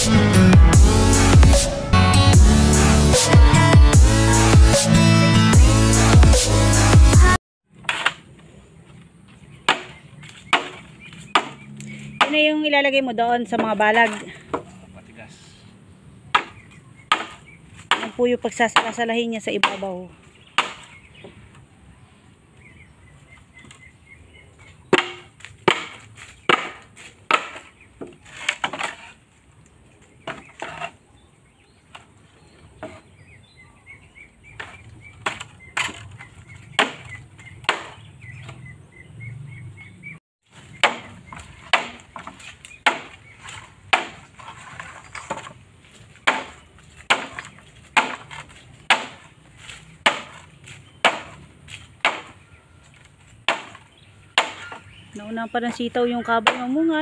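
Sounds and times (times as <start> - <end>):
blade chopping bamboo: 7.8 - 8.4, 9.6 - 12.5, 16.3 - 21.0, 24.9 - 29.2, 34.6 - 38.6, 40.6 - 45.6, 46.2 - 52.4, 53.4 - 54.9.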